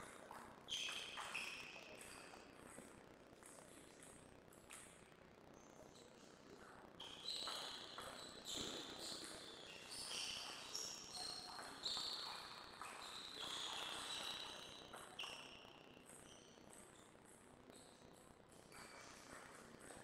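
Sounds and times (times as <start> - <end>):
sports shoes squeaking on court: 7.0 - 16.6.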